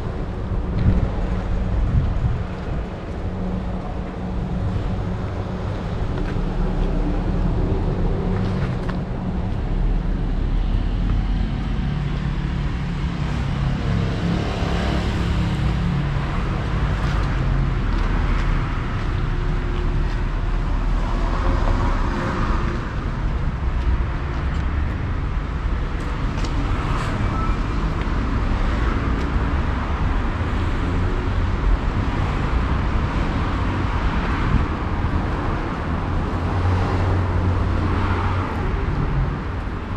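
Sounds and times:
steady low rumble: 0.0 - 13.3
car engines passing: 0.0 - 39.9.

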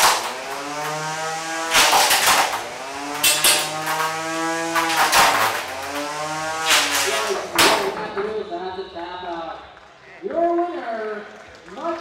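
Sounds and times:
electric motors whining: 0.0 - 7.6
robots crashing: 0.0 - 8.1.

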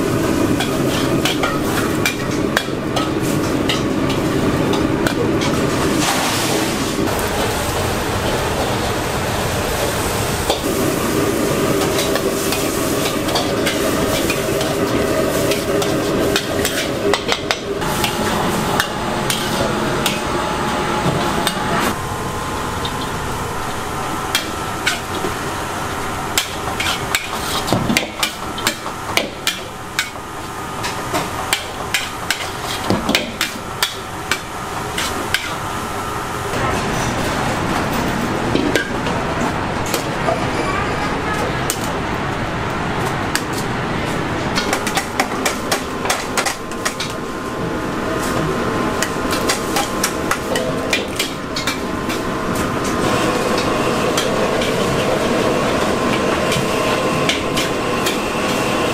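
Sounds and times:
hiss of frying: 0.0 - 17.2, 17.8 - 20.7, 21.4 - 37.4.

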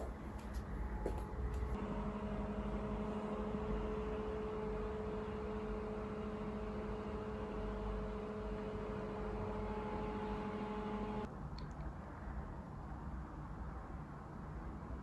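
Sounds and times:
steady machine hum: 0.0 - 11.3.

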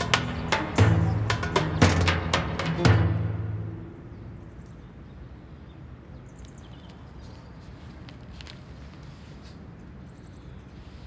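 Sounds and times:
low rumble and hiss: 0.0 - 11.0.

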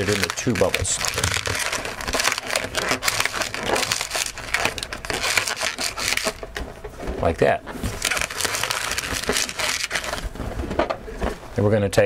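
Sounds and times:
balloon squeaking and crackling: 0.0 - 6.6, 7.2 - 10.7.

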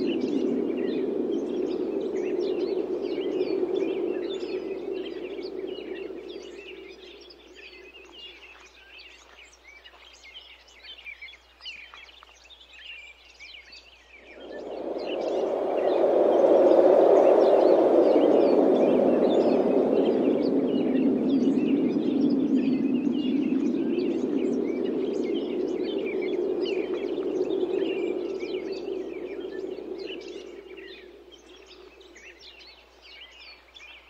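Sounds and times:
wind gusting: 0.0 - 8.5, 14.1 - 32.7
small birds chirping: 0.0 - 34.0.

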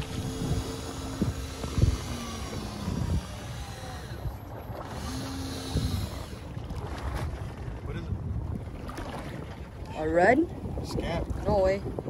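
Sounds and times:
short steady hum: 0.0 - 6.7
rumble of wind and water: 0.0 - 12.0.

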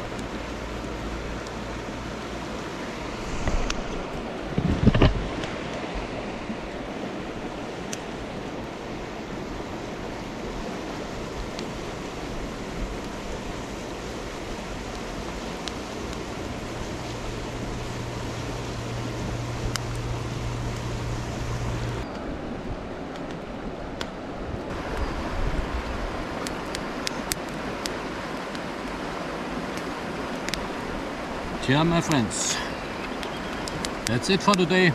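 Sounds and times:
river flowing over stones: 0.0 - 34.9
faint clicks: 33.0 - 34.6.

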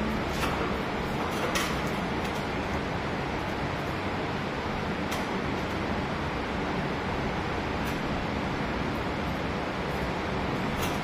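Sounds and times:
steady rushing noise: 0.0 - 11.0.

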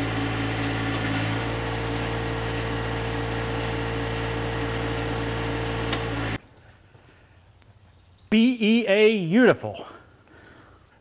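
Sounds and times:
diesel engine running: 0.0 - 6.4
high steady hydraulic whine: 0.0 - 6.4.

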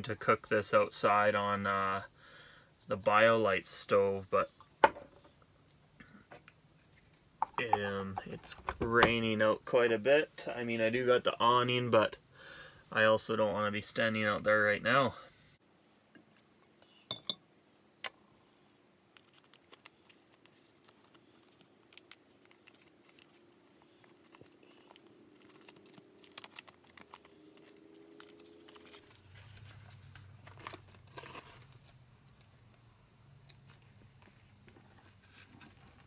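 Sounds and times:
low steady hum: 0.0 - 36.0
crinkling: 19.1 - 36.0.

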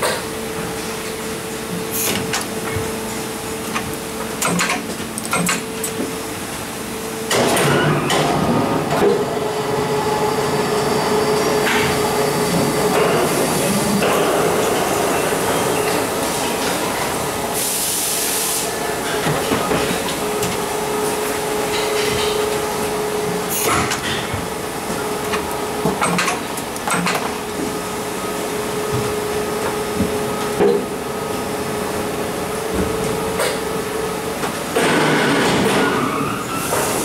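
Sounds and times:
machine hum with whine: 0.0 - 17.8.

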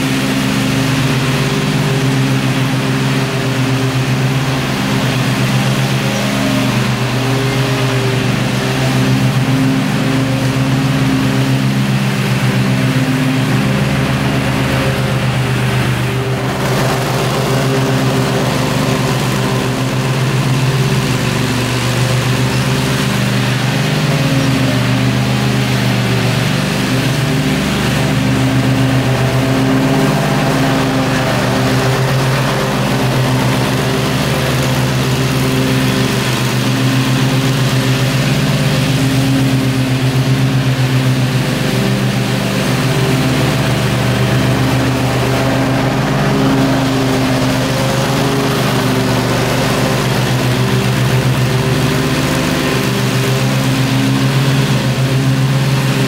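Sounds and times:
riding mower engine running: 0.0 - 56.0.

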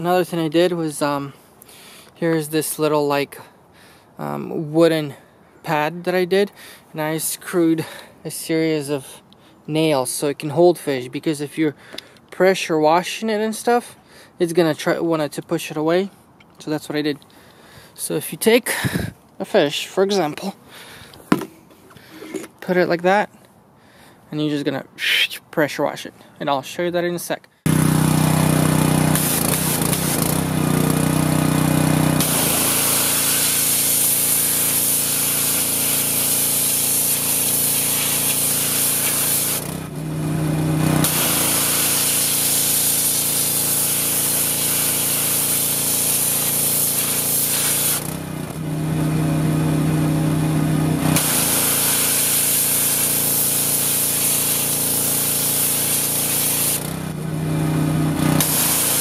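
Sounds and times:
water spray hissing: 27.7 - 31.1, 32.0 - 39.8, 40.8 - 48.1, 51.1 - 56.9, 58.3 - 59.0
pressure washer engine running: 27.7 - 59.0.

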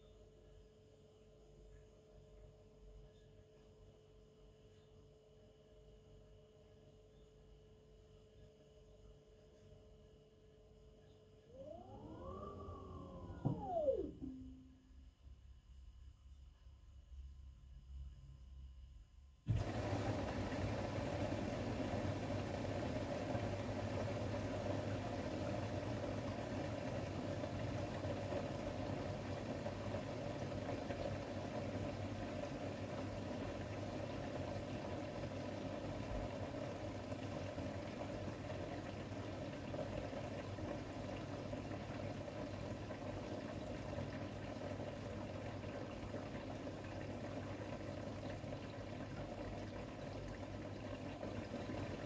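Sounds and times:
washing machine humming: 11.4 - 15.0, 19.5 - 52.0
water noise: 11.5 - 14.9, 19.5 - 52.0.

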